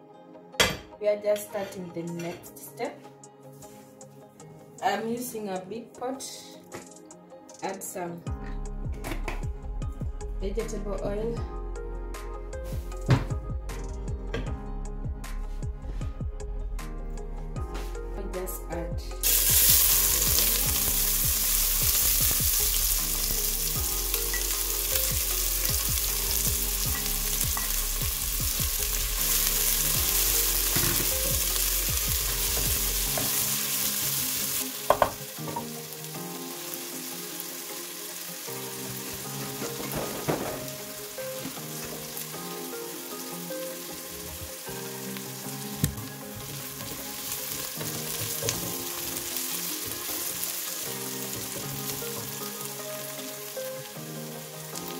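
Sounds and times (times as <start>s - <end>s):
onion sizzling in hot oil: 19.2s - 54.9s.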